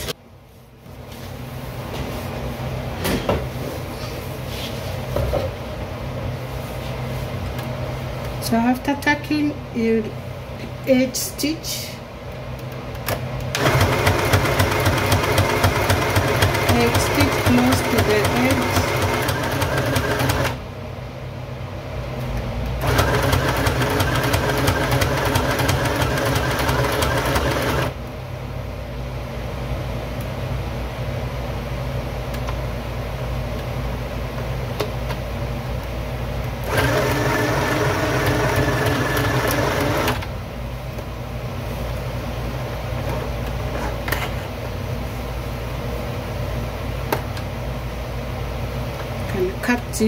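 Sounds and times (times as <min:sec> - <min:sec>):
steady low hum: 0:00.0 - 0:50.0
electric sewing machine stitching: 0:13.5 - 0:20.6, 0:22.8 - 0:28.0, 0:36.6 - 0:40.3.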